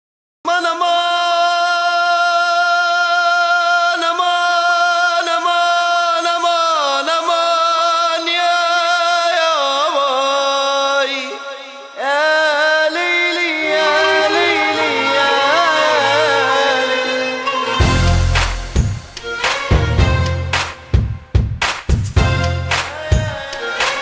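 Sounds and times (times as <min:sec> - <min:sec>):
person singing long notes: 0:12.0 - 0:18.0, 0:22.9 - 0:24.0.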